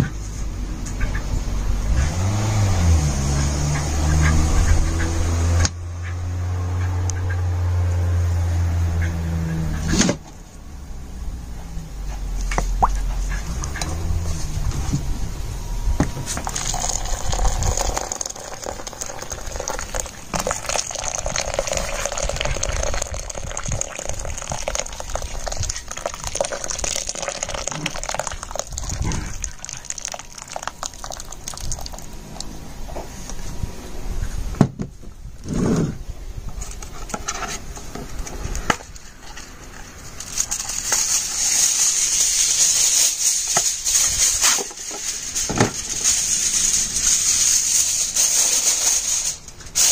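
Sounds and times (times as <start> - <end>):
water pouring and splashing: 16.3 - 32.6, 40.2 - 49.9
aluminium foil crinkling: 16.4 - 32.1, 40.2 - 49.9.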